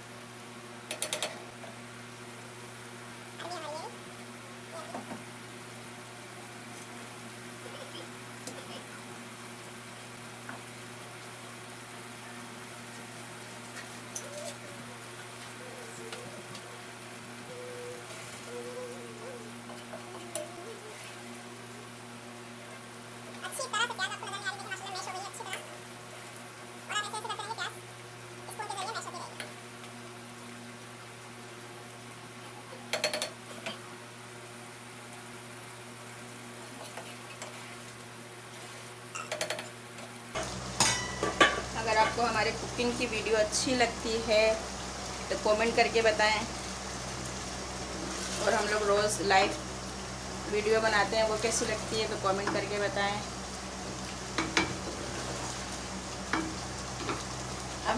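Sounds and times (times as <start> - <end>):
food sizzling in a pot: 0.0 - 57.9
faint bird cooing: 7.5 - 8.9, 13.8 - 22.2, 32.3 - 33.8.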